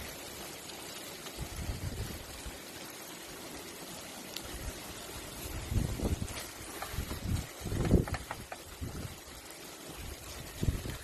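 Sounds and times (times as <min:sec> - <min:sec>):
stew simmering in a pan: 0:00.0 - 0:11.0.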